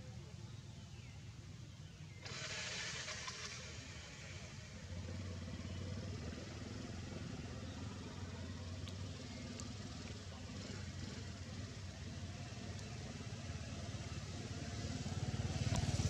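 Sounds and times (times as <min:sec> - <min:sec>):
engine running: 0:02.0 - 0:16.0.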